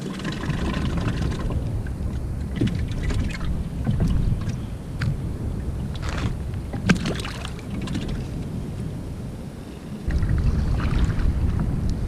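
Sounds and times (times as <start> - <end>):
small water splashes: 0.0 - 5.1, 5.9 - 8.4, 10.0 - 11.7
wind buffeting microphone: 0.0 - 12.0.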